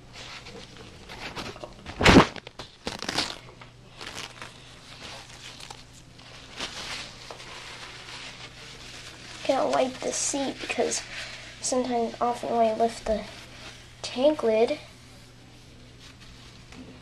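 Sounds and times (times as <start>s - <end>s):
toilet paper tearing and rustling: 0.2s - 14.8s.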